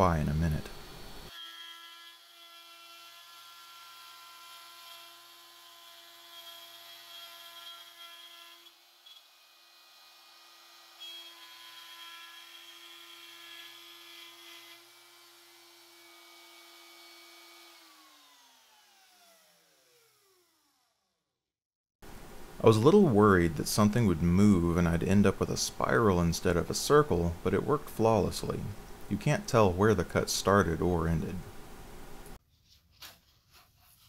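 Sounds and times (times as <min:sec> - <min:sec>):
router cutting wood: 0:01.3 - 0:20.7
router whine spinning down: 0:16.0 - 0:21.0.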